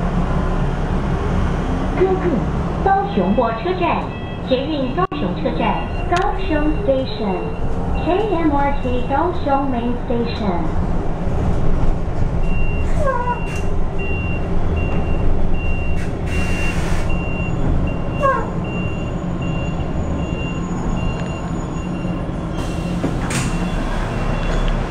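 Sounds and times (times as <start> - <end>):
bus rumbling: 0.0 - 24.9
high repeating warning beep: 3.1 - 9.4.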